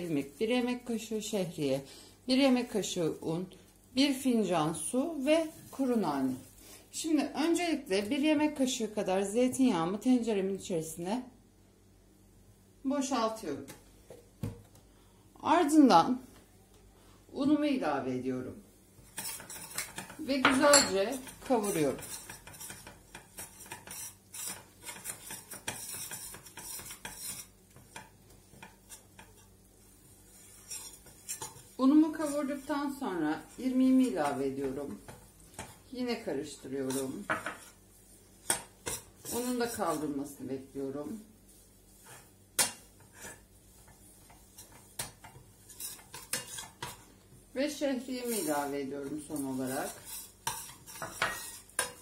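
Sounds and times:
metal spoon scraping saucepan: 0:19.1 - 0:29.5, 0:30.3 - 0:35.7, 0:36.5 - 0:37.8, 0:38.5 - 0:40.4, 0:42.0 - 0:47.1, 0:48.0 - 0:52.0
spoon clinking against metal pot: 0:20.5 - 0:21.0.

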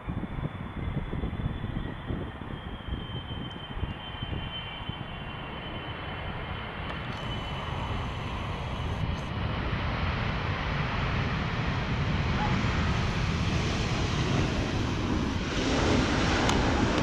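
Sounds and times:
jet rumble: 0:00.0 - 0:17.0
high-pitched fan whine: 0:00.1 - 0:09.3.

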